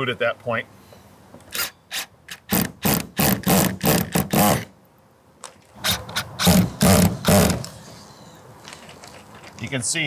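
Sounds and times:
cordless screw gun bursts: 1.5 - 4.7, 5.8 - 7.8.

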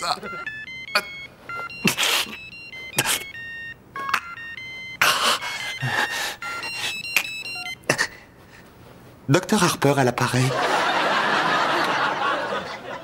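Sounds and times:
phone electronic ringtone: 0.0 - 7.9.

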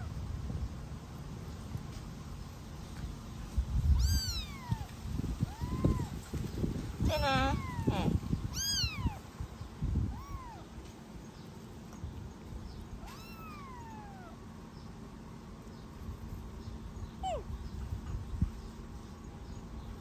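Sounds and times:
kitten mewing: 3.9 - 6.2, 7.1 - 9.2, 10.0 - 10.7, 13.0 - 14.4, 17.2 - 17.5.

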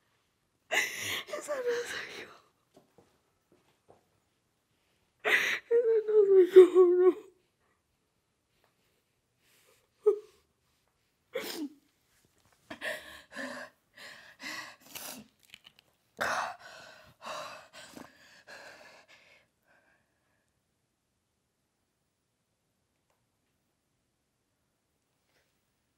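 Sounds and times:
woman sobbing: 0.7 - 2.3, 5.2 - 7.4, 10.0 - 10.4.

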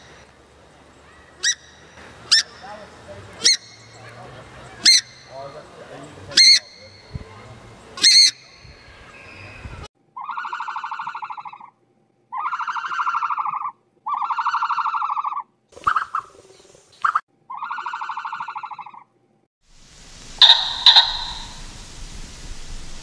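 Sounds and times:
animal shrill cry: 10.2 - 11.6, 12.3 - 15.4
animal pulsing call: 10.2 - 16.3, 17.1 - 19.0, 20.4 - 21.6.

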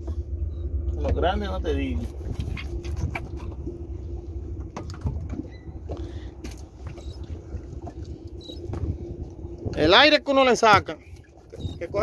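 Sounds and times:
boat motor idling: 0.0 - 12.0.

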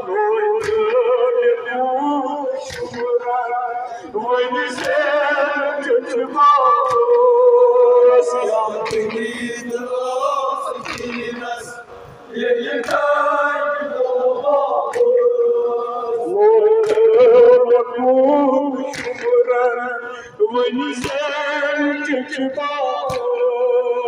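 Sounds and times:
men chanting through loudspeaker: 0.0 - 24.0
chest beating slaps: 18.9 - 19.3.

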